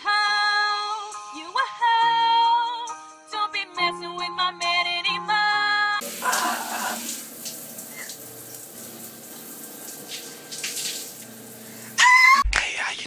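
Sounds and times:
shower spray running: 0:06.0 - 0:12.4
high-pitched scream: 0:12.0 - 0:12.5
man's voice: 0:12.5 - 0:13.0.

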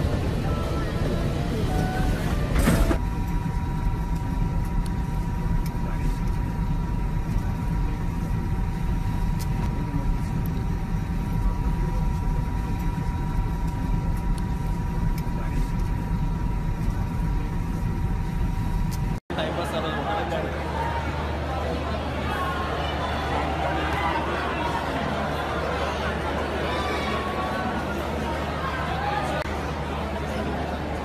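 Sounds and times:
faint even whine: 0:00.0 - 0:19.2
airliner cabin drone: 0:00.0 - 0:26.6.

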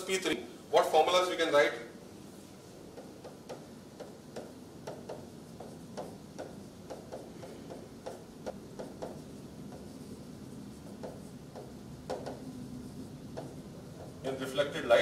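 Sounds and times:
faint room hum: 0:00.0 - 0:15.0
stylus tapping on a screen: 0:02.9 - 0:10.0, 0:11.0 - 0:12.4, 0:13.3 - 0:14.2.

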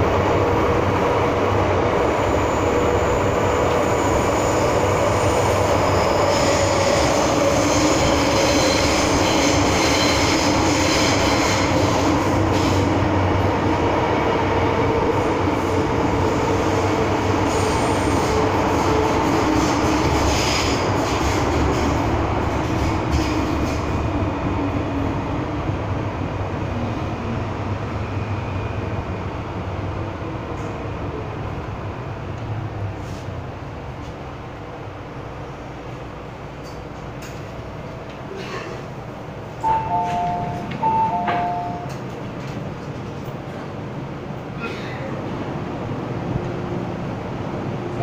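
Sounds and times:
train wheels rumbling on rail: 0:00.0 - 0:48.0.

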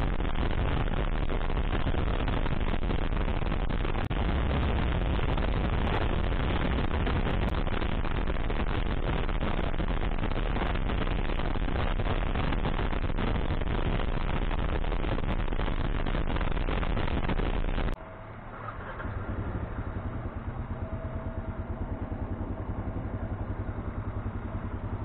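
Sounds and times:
wind on microphone: 0:00.0 - 0:18.0
motorcycle engine drone: 0:00.0 - 0:25.0.

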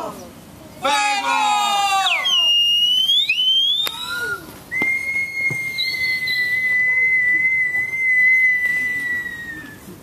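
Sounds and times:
whistle long high note: 0:02.0 - 0:09.8.

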